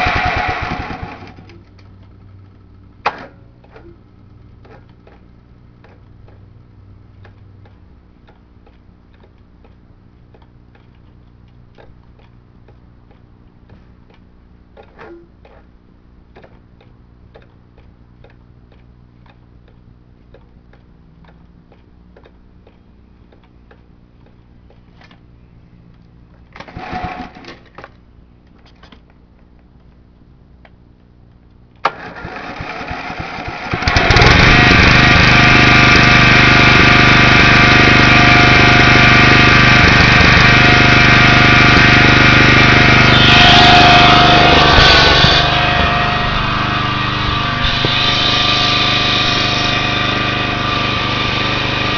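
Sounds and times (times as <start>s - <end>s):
mower engine running: 0.0s - 2.9s, 26.7s - 27.5s, 31.8s - 51.9s.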